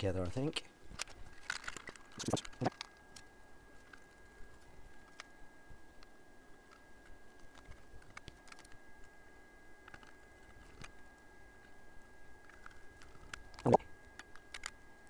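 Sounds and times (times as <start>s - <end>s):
faint high-pitched whine: 0.0s - 15.0s
small clicks of parts handled: 12.4s - 14.8s.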